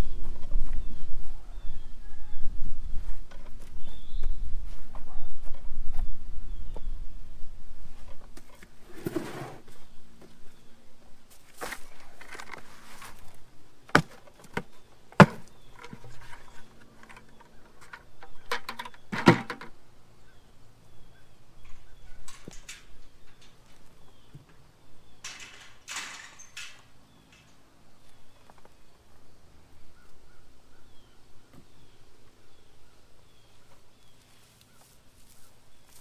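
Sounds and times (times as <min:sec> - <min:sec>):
soil rustling: 0:07.8 - 0:19.8, 0:33.3 - 0:36.0.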